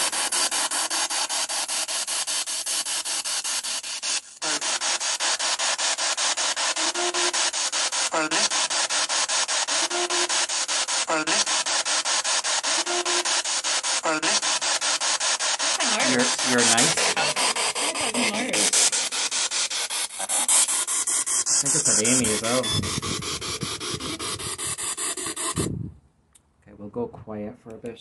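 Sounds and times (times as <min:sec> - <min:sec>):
voice-like radio scraps: 0:04.4 - 0:05.6, 0:06.7 - 0:08.9, 0:09.8 - 0:11.8, 0:14.0 - 0:14.7, 0:15.6 - 0:19.1, 0:21.5 - 0:24.8
chopped radio static: 0:04.4 - 0:25.7.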